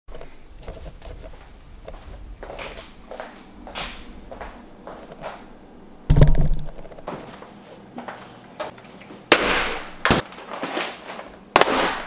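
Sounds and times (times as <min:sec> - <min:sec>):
objects knocking on a counter: 0:06.1 - 0:07.2.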